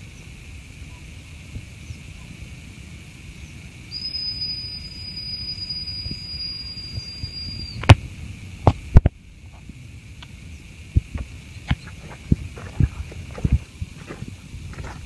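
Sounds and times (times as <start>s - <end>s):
high-pitched whistle: 3.9s - 7.9s.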